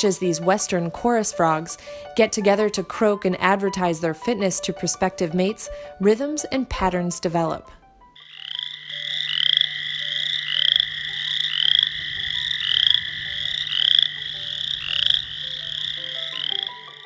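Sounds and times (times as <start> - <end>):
frog calling in pulsed trills: 8.2 - 17.0.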